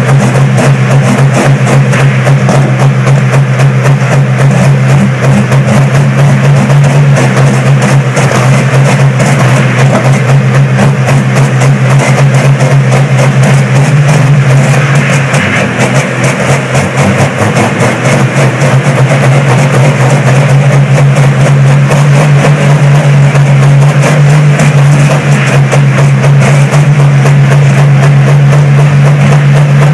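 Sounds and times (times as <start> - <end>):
tractor diesel engines droning: 0.0 - 29.9.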